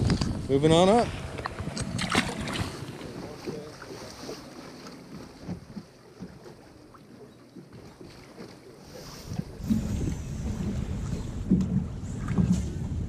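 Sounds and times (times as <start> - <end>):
wind noise on microphone: 0.0 - 3.0, 9.0 - 13.0
fish splashing into water: 1.4 - 5.1.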